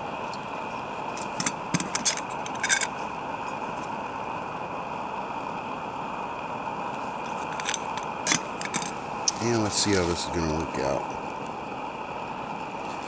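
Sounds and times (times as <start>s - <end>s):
camp stove hissing: 0.0s - 13.0s.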